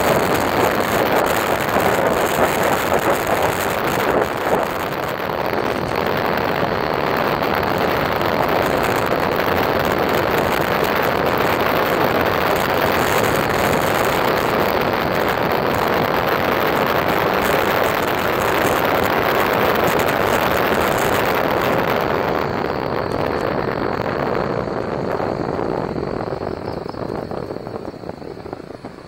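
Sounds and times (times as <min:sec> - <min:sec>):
wheels on road: 0:00.0 - 0:29.0
wind rushing on microphone: 0:00.0 - 0:29.0.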